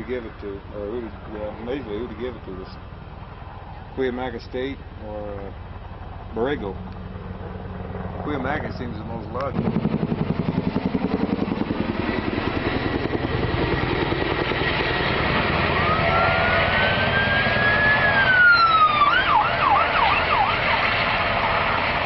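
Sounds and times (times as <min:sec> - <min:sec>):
helicopter rotor beating: 0:00.0 - 0:22.0
emergency vehicle siren: 0:15.1 - 0:22.0.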